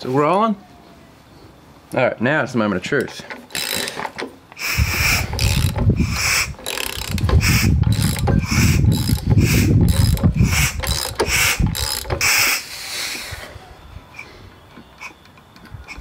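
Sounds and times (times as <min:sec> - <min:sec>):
ratchet wrench clicking: 0:03.4 - 0:12.6.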